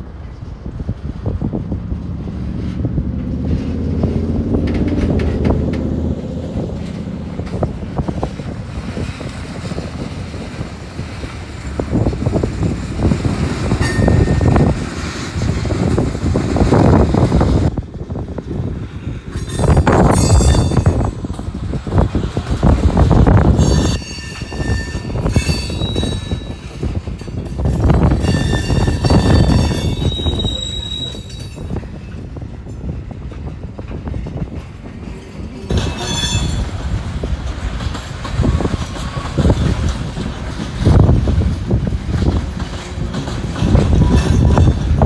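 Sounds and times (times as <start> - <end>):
wind buffeting microphone: 0.0 - 45.0
freight train wheels squealing: 13.0 - 14.8, 19.3 - 21.2, 23.6 - 32.9, 35.0 - 36.9.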